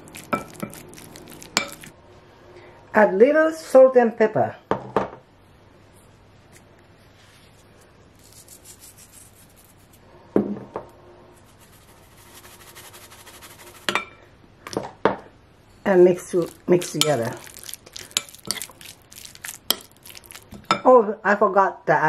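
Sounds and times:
spice mill grinding: 0.0 - 1.9, 16.4 - 20.6.

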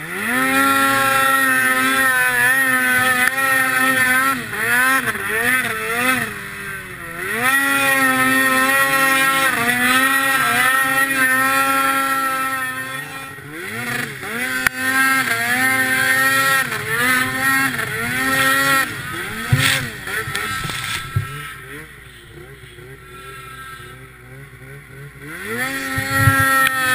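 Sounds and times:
snowmobile engine revving: 0.0 - 26.9.

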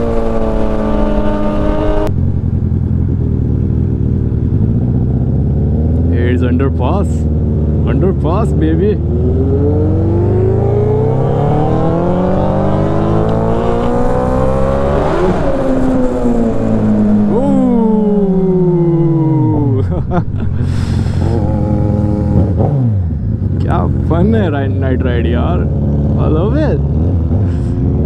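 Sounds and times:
motorcycle engine revving: 0.0 - 28.0.

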